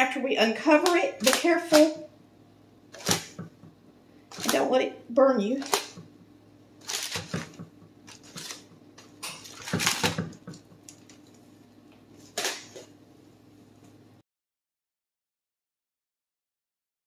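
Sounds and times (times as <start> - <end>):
aluminium foil crinkling: 6.8 - 11.4.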